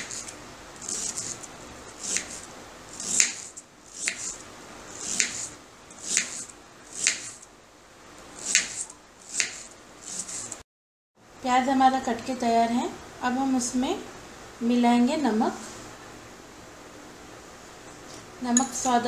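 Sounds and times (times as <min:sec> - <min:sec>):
knife chopping on cutting board: 0:03.0 - 0:04.4, 0:05.0 - 0:07.4, 0:08.4 - 0:10.5.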